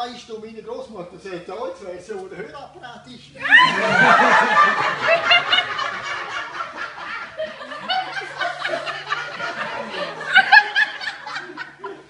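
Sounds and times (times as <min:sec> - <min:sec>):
audience laughing: 0:03.4 - 0:12.0.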